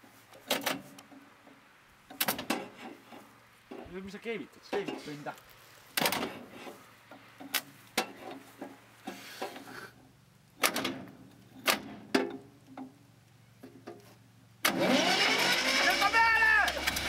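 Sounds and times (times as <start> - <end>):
metallic clicks and knocks: 10.6 - 13.0.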